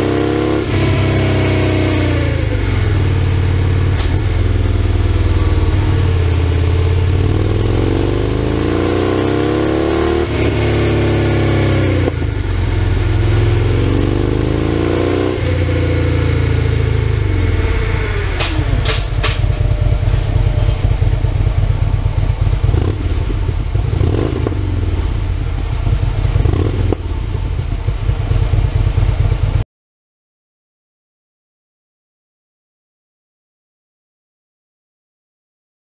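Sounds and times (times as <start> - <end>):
motorcycle engine revving: 0.0 - 29.6
motorcycle engine idling unevenly: 1.8 - 8.5, 15.5 - 29.6
exhaust pops: 3.8 - 6.8, 17.4 - 29.2.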